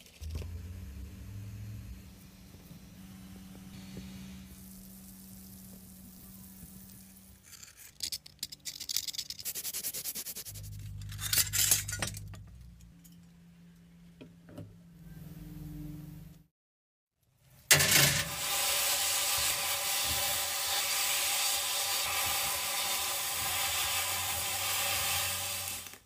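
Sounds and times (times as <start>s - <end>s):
cleaning bath humming: 0.0s - 7.4s, 17.7s - 26.0s
bubbles fizzing: 3.8s - 7.3s.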